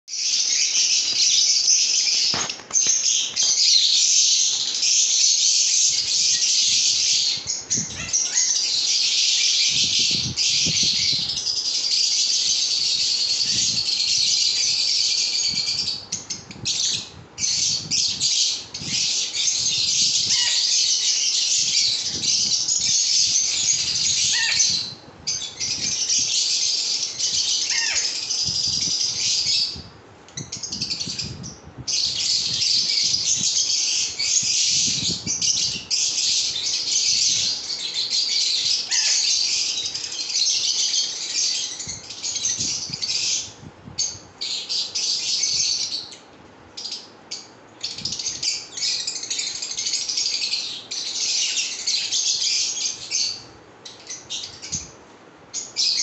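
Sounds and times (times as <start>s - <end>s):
lovebirds twittering and squawking: 0.1s - 56.0s.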